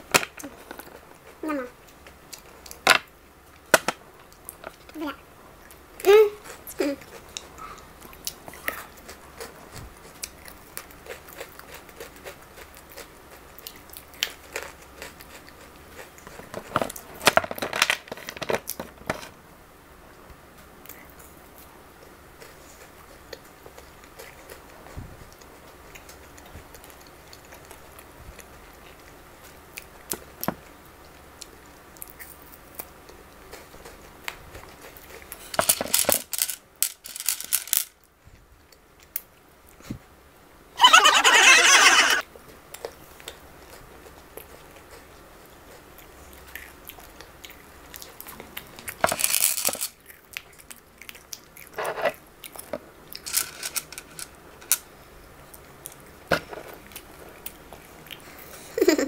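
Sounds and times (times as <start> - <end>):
chocolate wrappers crinkling: 53.2 - 54.8.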